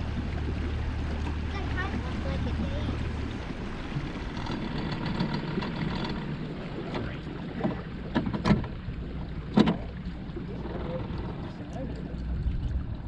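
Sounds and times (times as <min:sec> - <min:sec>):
outboard motor humming: 0:00.0 - 0:13.0
water noise: 0:00.0 - 0:13.0
wind noise: 0:12.3 - 0:13.0.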